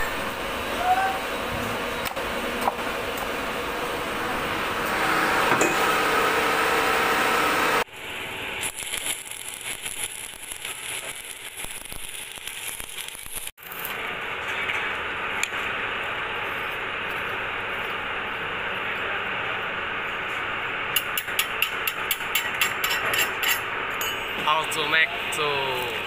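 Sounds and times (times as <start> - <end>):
workshop noise: 0.0 - 26.0
arc welding crackle: 7.4 - 19.3, 24.6 - 26.0.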